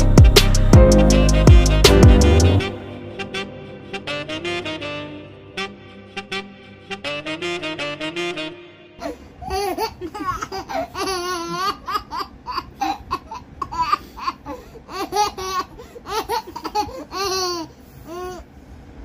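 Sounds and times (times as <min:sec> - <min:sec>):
baby laughing: 0:09.0 - 0:18.4.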